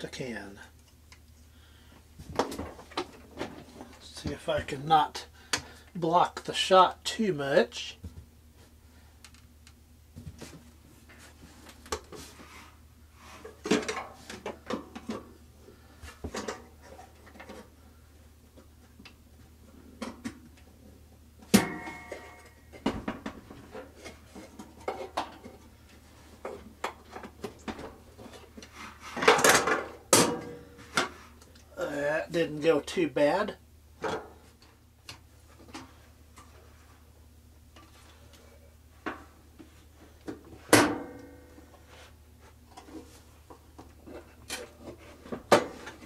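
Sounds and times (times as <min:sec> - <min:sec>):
sharp metallic clank: 0:21.5 - 0:22.6.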